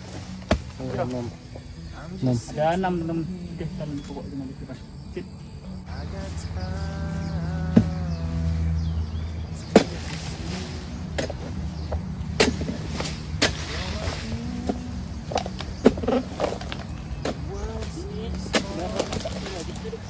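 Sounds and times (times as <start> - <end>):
blade chopping palm fronds: 0.0 - 1.2, 9.6 - 20.0.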